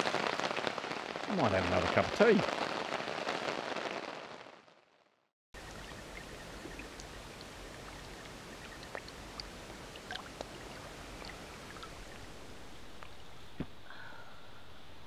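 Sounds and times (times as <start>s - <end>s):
small splashes and clicks: 6.2s - 12.2s.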